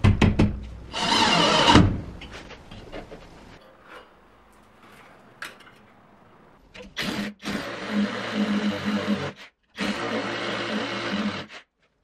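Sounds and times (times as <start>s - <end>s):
electric hammer drill boring: 7.0s - 11.6s.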